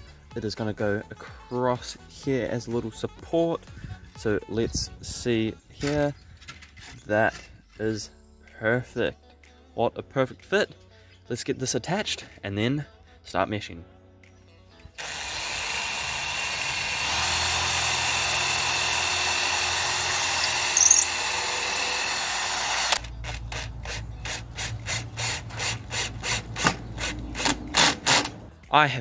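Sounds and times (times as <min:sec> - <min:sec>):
cordless drill motor running: 0:15.0 - 0:27.9
drill clutch clicking: 0:15.0 - 0:28.4.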